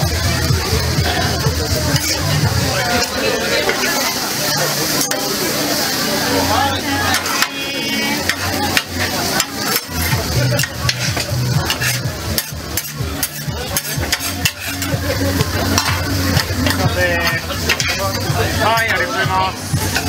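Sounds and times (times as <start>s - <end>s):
noodles sizzling: 0.0s - 20.0s
metal spatulas scraping griddle: 1.9s - 4.0s, 7.0s - 18.1s.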